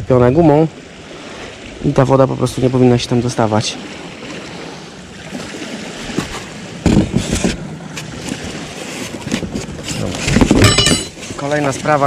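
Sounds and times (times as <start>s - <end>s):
surf washing on beach: 0.0s - 12.0s
wind on microphone: 4.5s - 12.0s.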